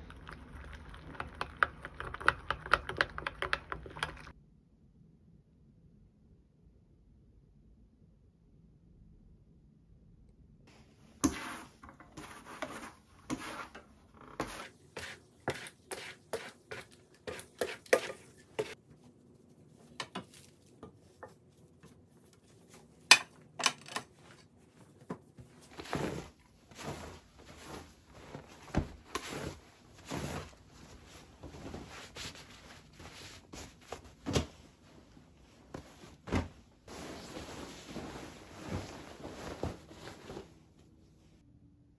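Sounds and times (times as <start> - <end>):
bedding rustling: 24.2 - 41.4.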